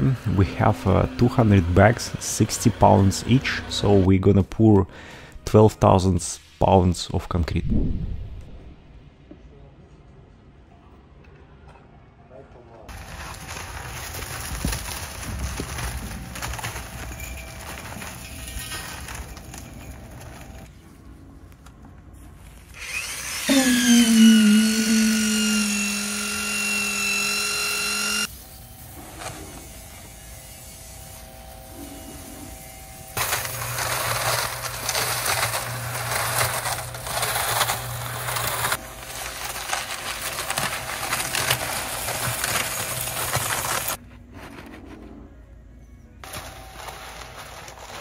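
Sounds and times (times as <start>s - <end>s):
motor whining: 22.7s - 28.3s
low motor hum: 22.8s - 28.3s
pressure washer spraying water: 24.9s - 31.3s.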